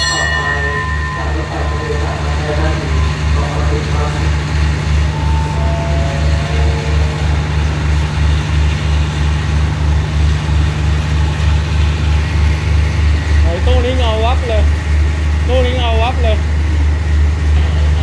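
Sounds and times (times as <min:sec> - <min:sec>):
faint high notes stepping down: 0:00.0 - 0:10.7
diesel engine idling: 0:00.0 - 0:18.0.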